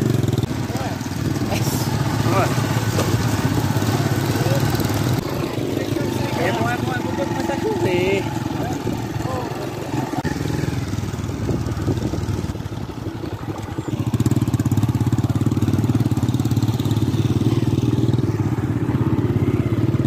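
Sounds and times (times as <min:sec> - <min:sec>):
small motorcycle engine running: 0:00.0 - 0:20.0.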